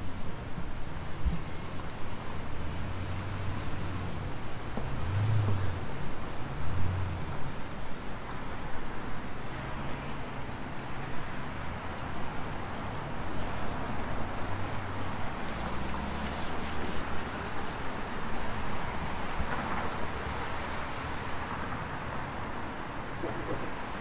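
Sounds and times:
tyres hissing on wet road: 0:01.0 - 0:07.7, 0:12.0 - 0:24.0.

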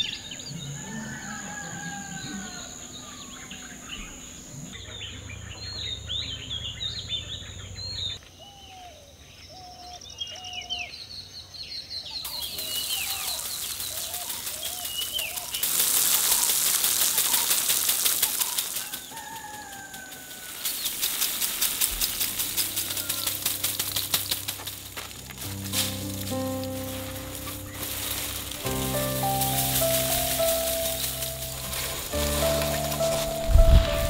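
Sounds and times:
birds chirping: 0:02.4 - 0:08.7, 0:09.5 - 0:34.0
seeds rattling onto a sheet: 0:12.3 - 0:34.0.

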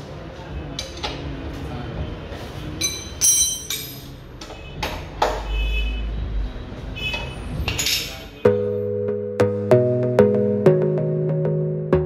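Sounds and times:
sharp metallic clinks: 0:02.8 - 0:04.1.

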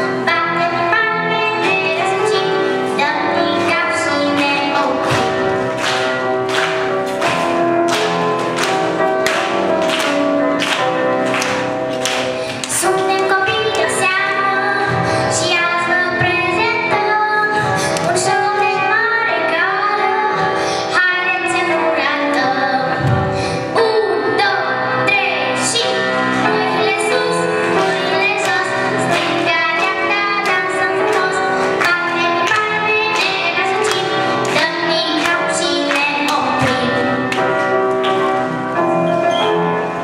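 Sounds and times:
girl singing into a microphone: 0:00.0 - 0:05.4, 0:12.4 - 0:37.2
grand piano accompaniment: 0:00.0 - 0:40.0.

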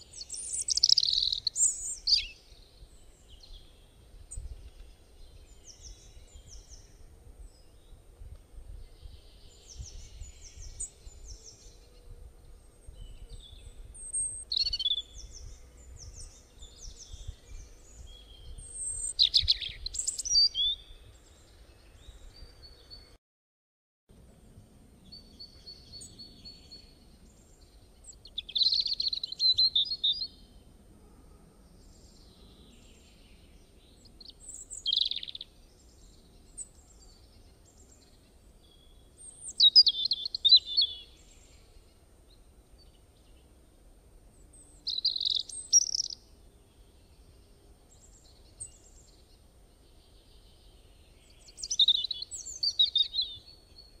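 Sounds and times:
small bird chirping: 0:00.0 - 0:02.6, 0:12.9 - 0:23.0, 0:25.1 - 0:30.4, 0:33.9 - 0:41.9, 0:44.5 - 0:46.2, 0:47.9 - 0:54.0.

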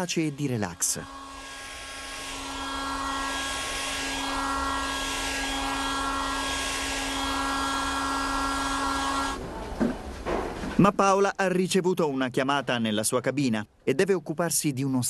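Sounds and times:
machine motor humming whine: 0:00.0 - 0:09.4.

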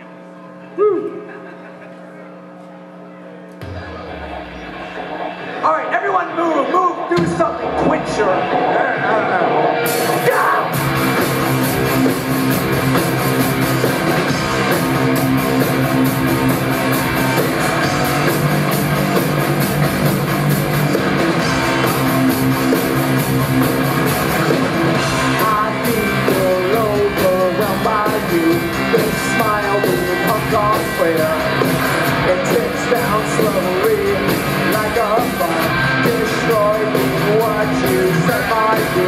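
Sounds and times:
live rock band playing: 0:03.6 - 0:39.0
person singing: 0:24.9 - 0:39.0.

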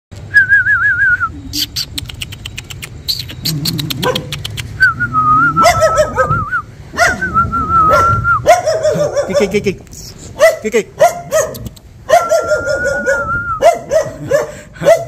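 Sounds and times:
person whistling: 0:00.3 - 0:02.1, 0:04.8 - 0:05.6, 0:06.3 - 0:08.4, 0:12.5 - 0:13.6
dog barking and yelping: 0:01.7 - 0:04.8, 0:05.5 - 0:09.6, 0:10.4 - 0:15.0.

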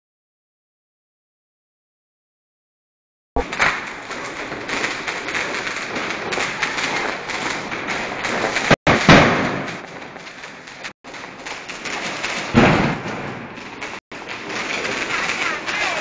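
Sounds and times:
fireworks crackling: 0:03.4 - 0:16.0
fireworks thumps: 0:03.4 - 0:16.0.

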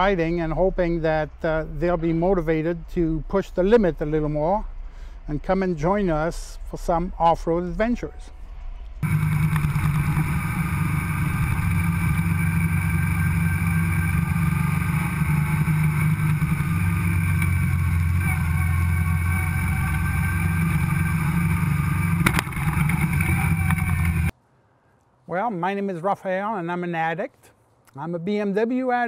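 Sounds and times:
motorcycle engine running: 0:09.0 - 0:24.3.

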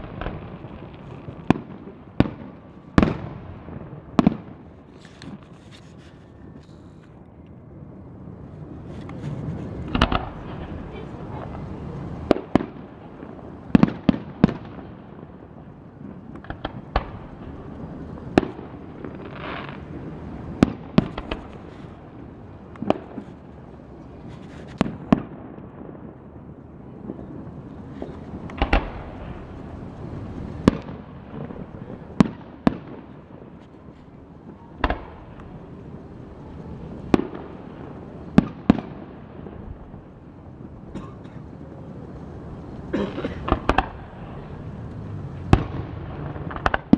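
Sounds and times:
fireworks bursting with bangs: 0:00.0 - 0:07.2, 0:08.5 - 0:46.9.

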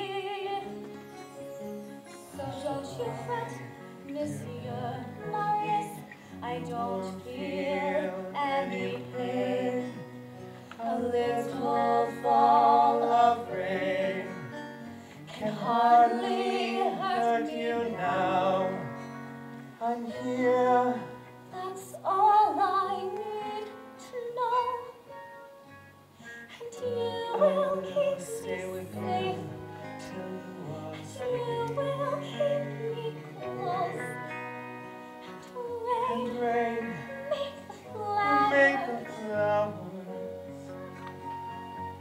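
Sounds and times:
girl singing a ballad: 0:00.0 - 0:01.2, 0:02.3 - 0:12.8, 0:20.9 - 0:25.3, 0:26.4 - 0:41.3
soft instrumental accompaniment: 0:00.0 - 0:42.0.

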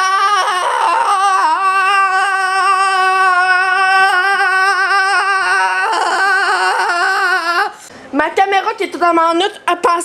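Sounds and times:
boy singing a long note: 0:00.0 - 0:07.8.

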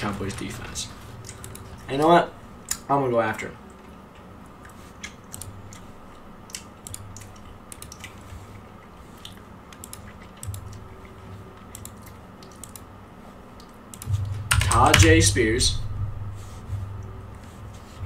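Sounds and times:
mouse and keyboard clicks: 0:06.5 - 0:08.2, 0:09.3 - 0:10.8, 0:11.7 - 0:12.8.

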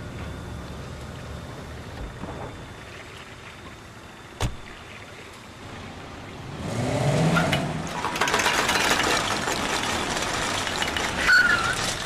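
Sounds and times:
rush of moving car: 0:05.7 - 0:11.0
car engine revving: 0:06.4 - 0:07.9.

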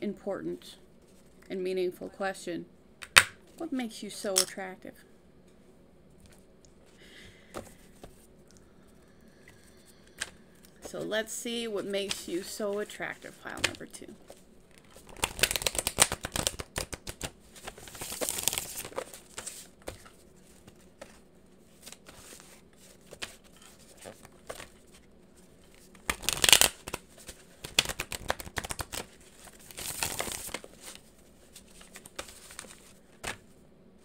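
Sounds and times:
cards being shuffled: 0:11.8 - 0:21.2, 0:25.6 - 0:33.5.

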